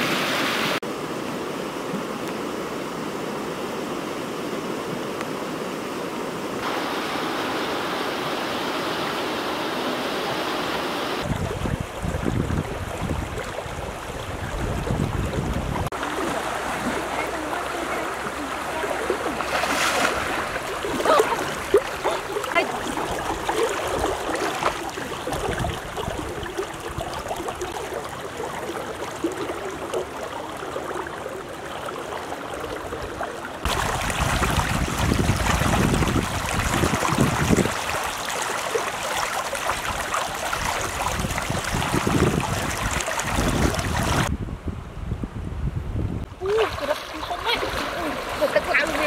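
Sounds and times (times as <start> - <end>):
floodwater rushing: 1.4 - 44.3, 46.3 - 49.0
wind rumbling on microphone: 11.2 - 19.5, 20.1 - 29.6, 32.8 - 38.3, 39.8 - 49.0
people wading splashes: 11.2 - 44.3, 46.4 - 49.0.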